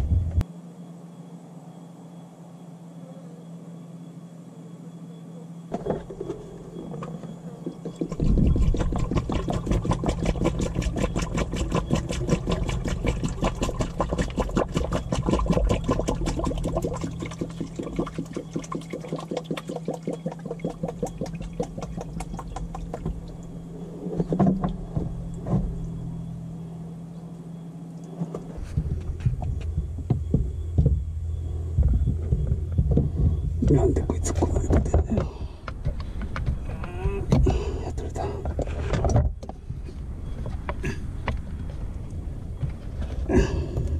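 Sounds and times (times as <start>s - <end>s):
heavy low rumble: 0.0s - 0.5s, 20.6s - 43.9s
coolant glugging into funnel: 7.6s - 26.0s, 31.8s - 35.6s
truck engine idling: 20.6s - 39.0s.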